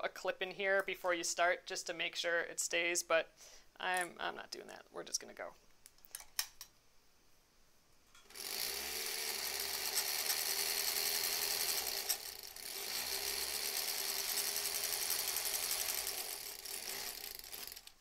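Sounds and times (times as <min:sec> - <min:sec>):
sewing machine running: 0:08.3 - 0:18.0.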